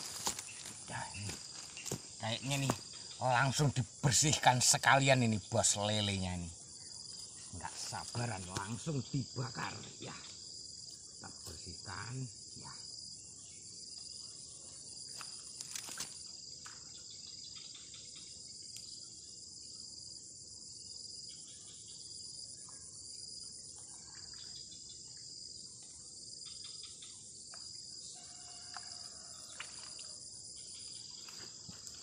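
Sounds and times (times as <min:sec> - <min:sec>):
high-pitched insect chorus: 0:00.0 - 0:32.0
pulsing insect call: 0:00.0 - 0:32.0.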